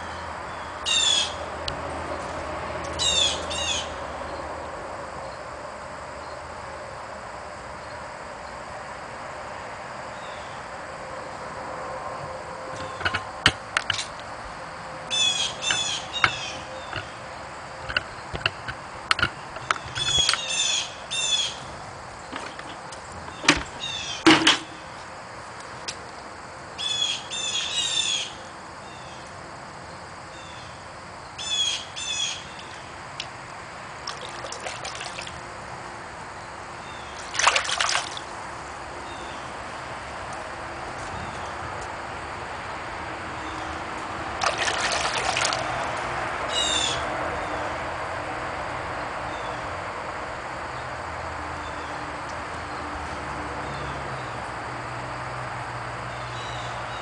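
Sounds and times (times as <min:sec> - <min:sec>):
songbird singing: 0:00.0 - 0:05.5, 0:10.1 - 0:10.6, 0:12.6 - 0:14.3, 0:15.0 - 0:25.0, 0:26.8 - 0:33.3, 0:34.0 - 0:41.7, 0:43.4 - 0:47.8, 0:51.6 - 0:52.9, 0:53.6 - 0:54.5, 0:56.1 - 0:57.0
water trickling: 0:34.0 - 0:35.5, 0:37.2 - 0:38.4, 0:44.4 - 0:46.0.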